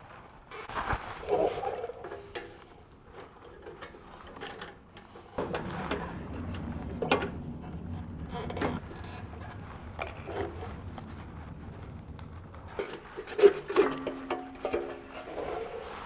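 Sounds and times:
low steady hum: 5.4s - 15.8s.

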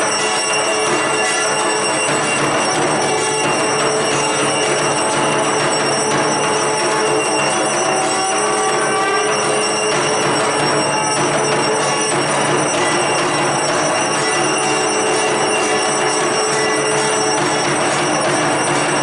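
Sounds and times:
bells ringing: 0.0s - 19.0s
steady musical din: 0.0s - 19.0s.

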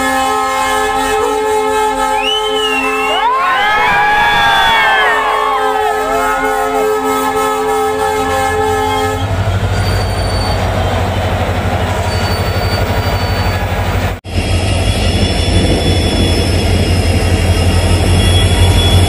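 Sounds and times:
locomotive air horn: 0.0s - 3.2s, 5.1s - 13.6s
diesel engine rumbling: 5.2s - 19.0s.

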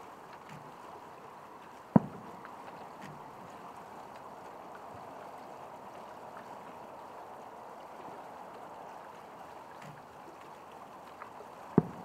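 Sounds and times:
rushing water: 0.0s - 12.0s
distant firework pops: 1.9s - 3.2s, 11.7s - 12.0s.

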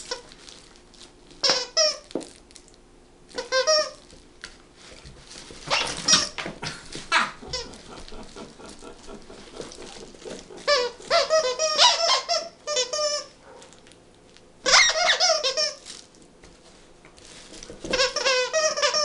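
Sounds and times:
squeaky toy squeaking: 3.4s - 4.0s, 5.7s - 6.4s, 10.7s - 13.4s, 14.6s - 15.8s, 17.9s - 19.0s.

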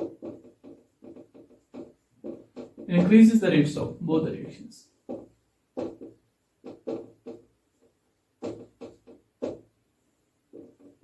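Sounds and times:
scratchy writing on a board: 0.0s - 3.4s, 4.9s - 9.8s, 10.4s - 11.0s.

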